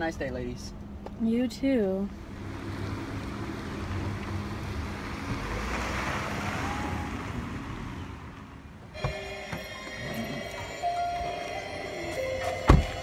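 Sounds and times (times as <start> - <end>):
cars driving on dirt road: 0.0 - 13.0
music: 9.0 - 13.0.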